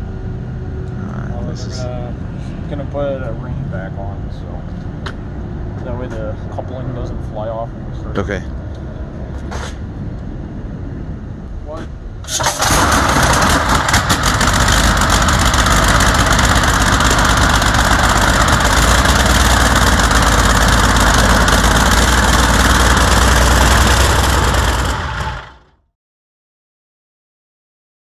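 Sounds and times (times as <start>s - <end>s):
unmuffled diesel engine idling: 12.4s - 25.7s.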